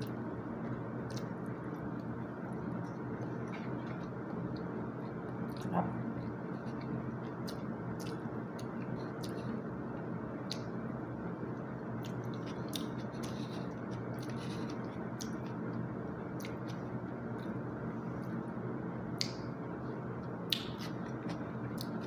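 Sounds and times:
chewing: 0:00.0 - 0:09.6, 0:12.0 - 0:15.6
steady background noise: 0:00.0 - 0:22.0.

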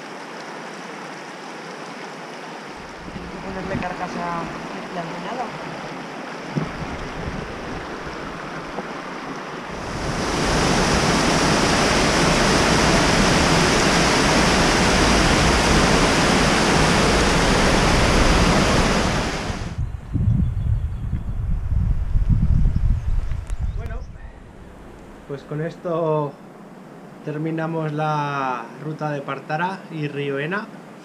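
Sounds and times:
river rushing over stones: 0:00.0 - 0:19.8
wind gusts on microphone: 0:02.8 - 0:04.7, 0:06.4 - 0:25.4
water pouring down a weir: 0:09.8 - 0:19.6.

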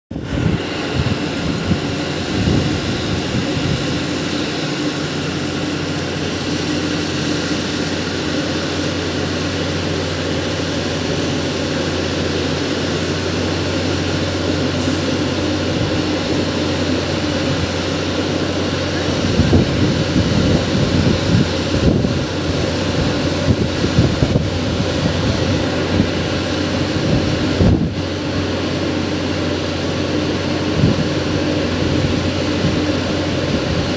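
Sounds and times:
diesel engine running: 0:00.0 - 0:33.9
wind buffeting microphone: 0:00.1 - 0:05.6, 0:19.0 - 0:28.8, 0:30.6 - 0:33.9.

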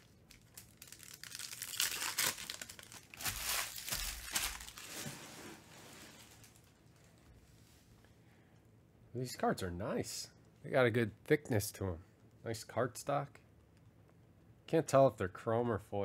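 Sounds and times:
cards rustling: 0:00.0 - 0:05.2
foil wrappers crinkling: 0:00.0 - 0:07.3.

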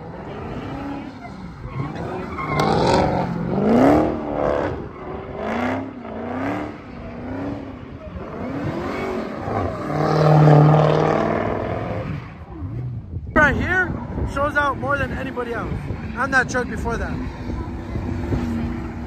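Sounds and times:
car engine revving hard: 0:00.0 - 0:12.8.

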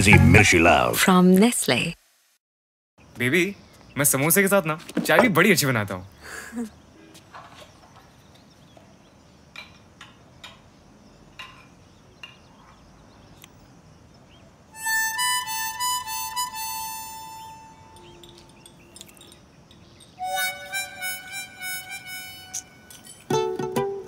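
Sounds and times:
harmonica wavering notes: 0:00.0 - 0:00.7, 0:14.8 - 0:18.6, 0:20.2 - 0:24.0.

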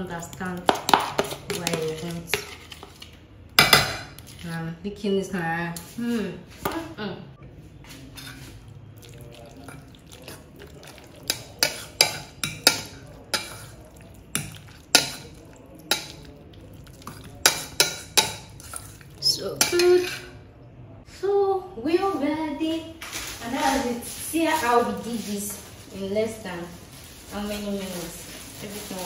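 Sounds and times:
cutlery clinking in a metal bowl: 0:00.3 - 0:04.4, 0:08.2 - 0:20.4.

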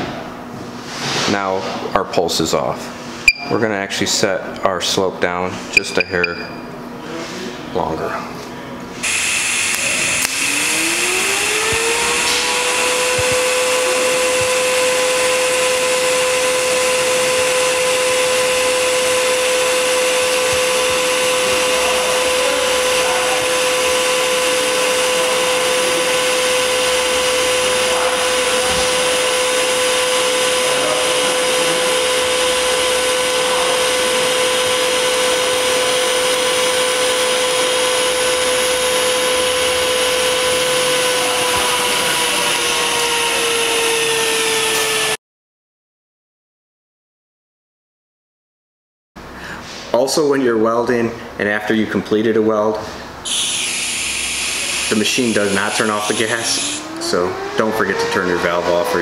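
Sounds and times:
welding arc whine and hiss: 0:09.0 - 0:45.2, 0:53.2 - 0:59.0.

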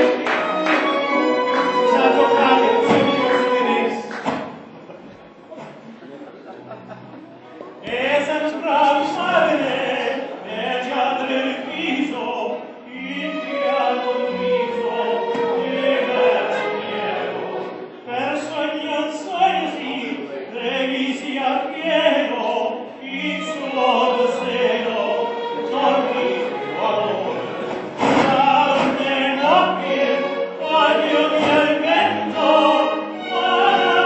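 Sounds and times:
instrumental backing track: 0:00.0 - 0:04.0
man and woman singing operatic duet: 0:00.0 - 0:04.2, 0:07.8 - 0:34.0.

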